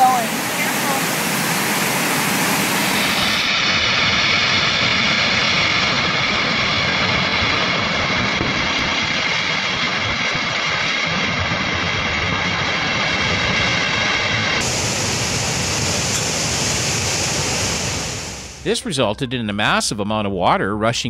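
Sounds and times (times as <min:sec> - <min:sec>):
flooding river roaring: 0:00.0 - 0:03.5, 0:14.6 - 0:18.5.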